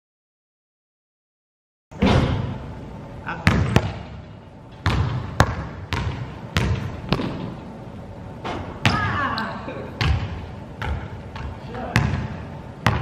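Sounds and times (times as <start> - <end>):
basketball bouncing on gym floor: 3.4 - 4.2, 4.8 - 7.6, 8.5 - 9.3, 10.0 - 13.0.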